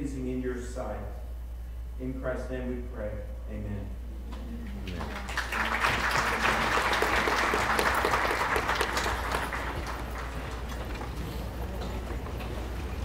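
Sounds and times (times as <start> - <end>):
steady low hum: 0.0 - 13.0
audience applauding: 4.8 - 13.0.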